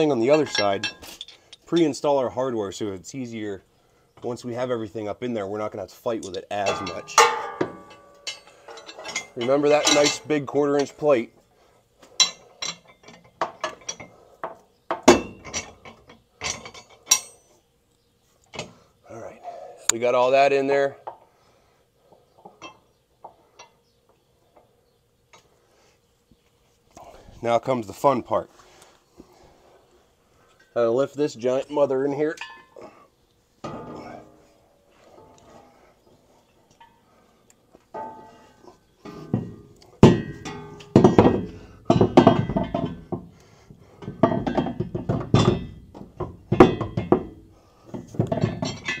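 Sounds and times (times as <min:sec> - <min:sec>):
metal hitch clanking: 0:00.0 - 0:02.0, 0:06.2 - 0:11.2, 0:12.2 - 0:14.2, 0:14.9 - 0:17.5, 0:31.8 - 0:33.0, 0:33.6 - 0:35.8, 0:37.9 - 0:49.0.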